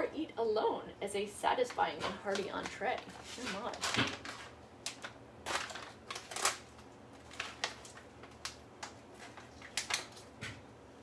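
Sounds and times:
paper bag crinkling: 1.7s - 10.4s.

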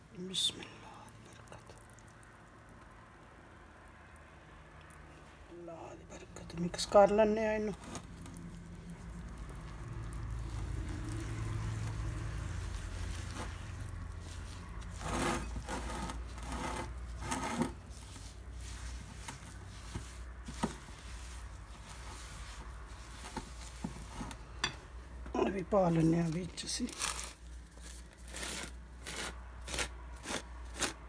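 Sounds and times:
low steady hum: 0.0s - 29.6s
whisk stirring thick mixture: 6.4s - 24.8s.

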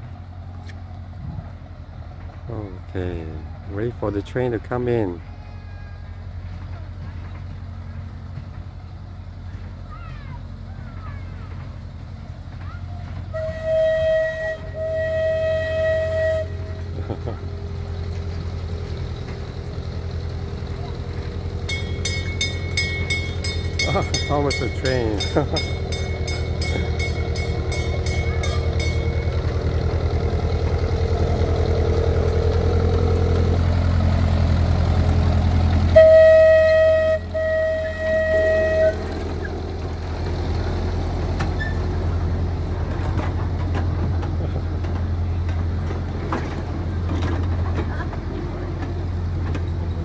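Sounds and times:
miniature train running hum: 0.0s - 50.0s
train whistle toots: 13.3s - 17.0s, 35.9s - 39.5s.

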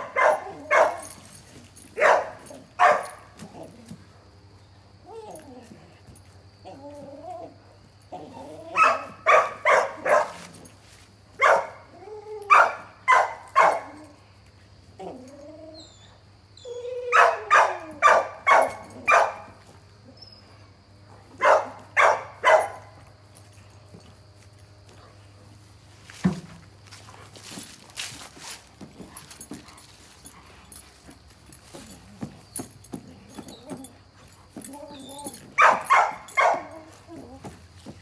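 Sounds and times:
dogs barking: 0.0s - 1.3s, 1.9s - 3.4s, 8.7s - 10.6s, 11.4s - 11.9s, 12.5s - 14.2s, 17.1s - 19.6s, 21.3s - 23.0s, 34.9s - 37.0s
dogs whining yelps: 0.0s - 3.9s, 5.0s - 10.7s, 11.4s - 14.2s, 15.0s - 20.7s, 21.3s - 23.0s, 31.4s - 38.0s.

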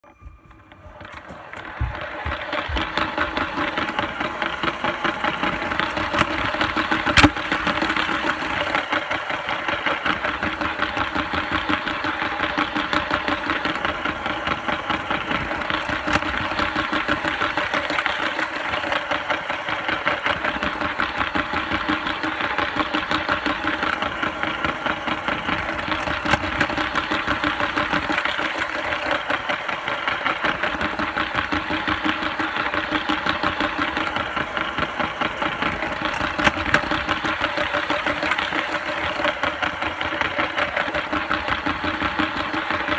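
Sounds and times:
small electric motor whirring: 0.0s - 42.9s
gears rattling on plastic track: 0.4s - 42.9s.

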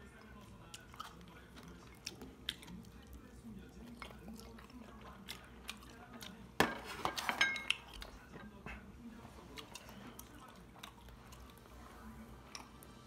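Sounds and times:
utensils clinking on dishes: 6.6s - 8.8s.

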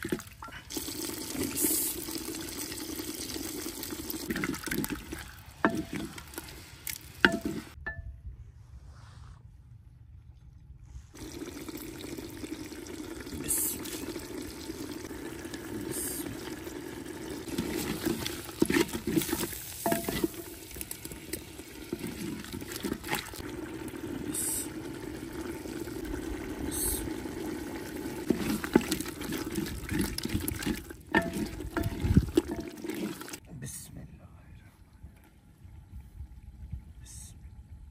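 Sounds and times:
stew simmering in a pot: 0.0s - 7.8s, 11.1s - 33.4s
wooden spoon stirring: 4.3s - 7.8s, 17.5s - 20.8s, 28.3s - 33.4s
spoon scraping pot: 17.5s - 20.5s, 30.6s - 33.4s.

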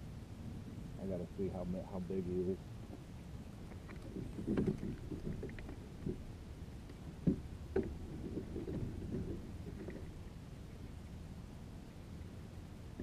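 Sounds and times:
rubbing and shuffling in kayak: 2.9s - 11.4s.

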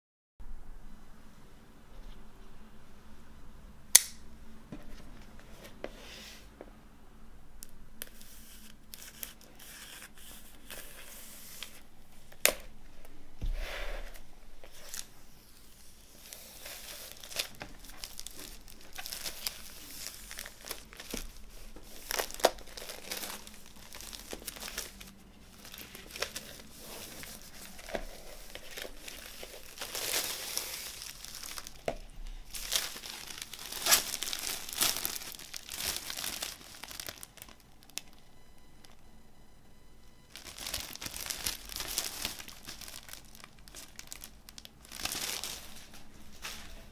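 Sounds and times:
plastic shrink wrap crinkling: 7.6s - 12.8s, 14.0s - 39.0s, 40.2s - 46.9s.

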